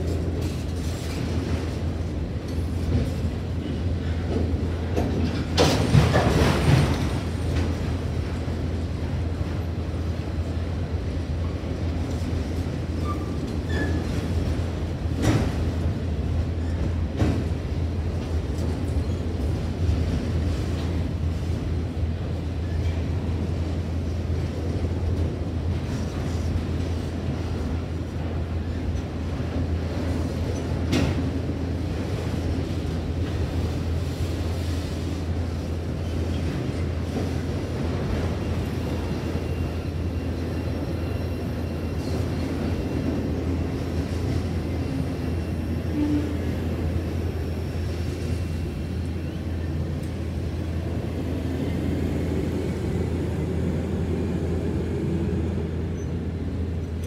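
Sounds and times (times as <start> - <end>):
freight train rolling over rails: 0.0 - 57.0.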